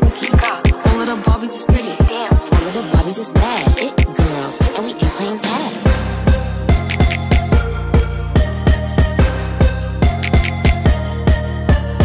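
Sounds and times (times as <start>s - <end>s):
pitch-bent vocals: 0.0s - 7.2s
hip-hop music with heavy beat: 0.0s - 12.0s.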